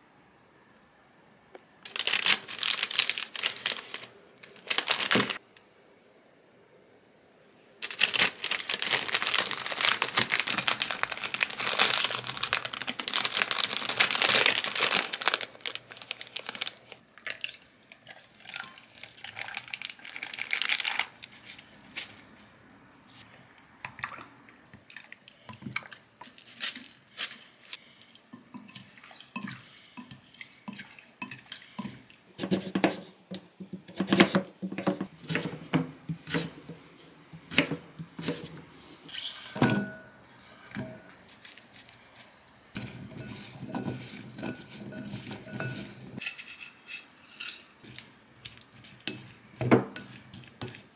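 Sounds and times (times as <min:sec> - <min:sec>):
plastic bags crinkling: 0:01.8 - 0:05.4, 0:07.8 - 0:17.5, 0:18.4 - 0:22.3, 0:41.2 - 0:46.2
spoon clinking in glass jug: 0:42.8 - 0:46.4.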